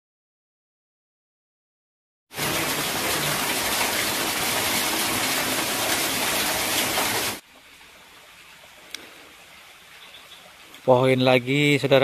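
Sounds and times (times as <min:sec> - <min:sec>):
waterfall splashing onto rocks: 0:02.3 - 0:07.4.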